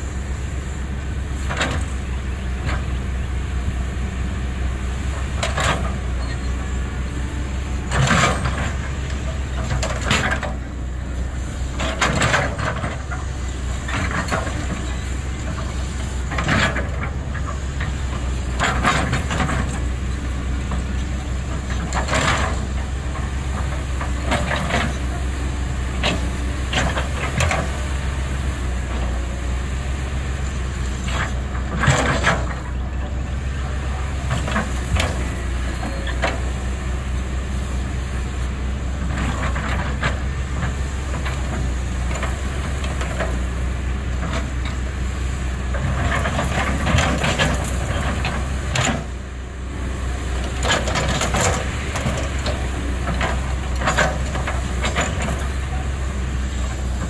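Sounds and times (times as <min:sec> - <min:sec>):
excavator diesel engine running: 0:00.0 - 0:57.0
excavator bucket clanking: 0:07.8 - 0:11.0, 0:11.7 - 0:29.4, 0:31.1 - 0:36.6, 0:45.6 - 0:49.2, 0:50.3 - 0:57.0.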